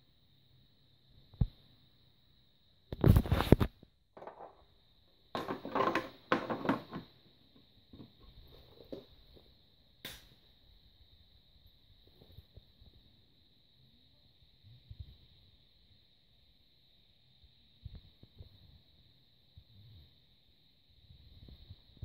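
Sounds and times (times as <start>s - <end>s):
plastic scraping and knocking: 3.0s - 4.6s, 5.4s - 7.2s.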